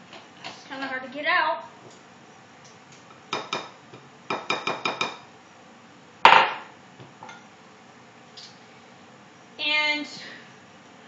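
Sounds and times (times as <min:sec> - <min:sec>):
glass cup knocking ceramic bowl: 0:04.3 - 0:05.2.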